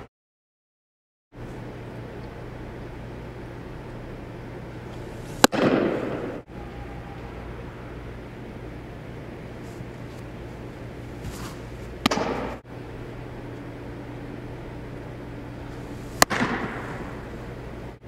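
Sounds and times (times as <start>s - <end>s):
steady low hum: 1.4s - 18.0s
baseball smacking into mitt: 5.4s - 6.3s, 12.0s - 12.6s, 16.1s - 17.2s.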